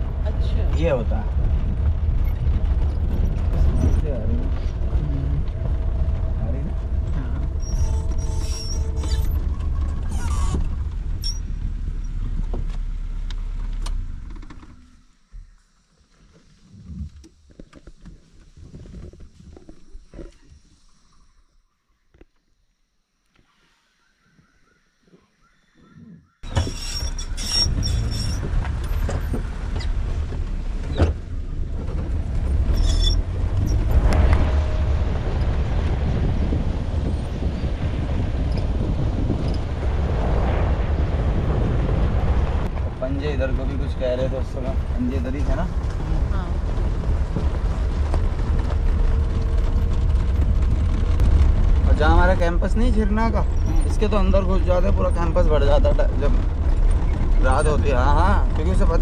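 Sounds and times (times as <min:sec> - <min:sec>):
vehicle engine rumbling: 0:00.0 - 0:59.0
wind on microphone: 0:25.8 - 0:59.0
knocks and rattles: 0:26.4 - 0:39.8.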